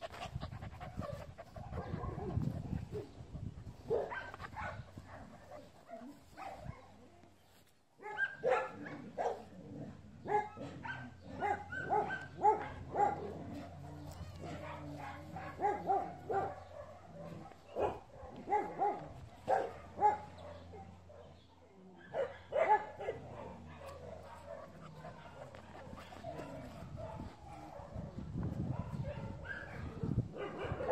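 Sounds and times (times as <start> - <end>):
young dog barking and yipping: 0.0 - 7.1, 8.0 - 9.5, 10.2 - 21.4, 22.0 - 30.9.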